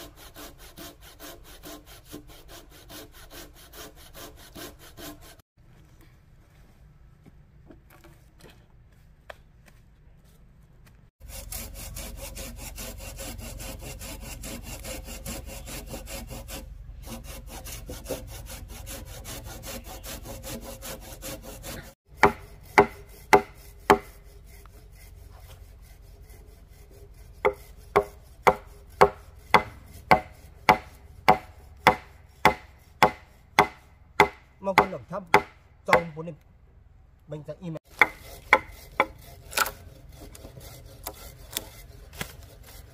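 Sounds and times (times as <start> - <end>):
hand saw cutting wood: 0.0 - 5.4, 11.2 - 36.4, 37.8 - 42.9
blade chopping wood: 21.7 - 24.1, 27.5 - 36.2, 37.9 - 42.6.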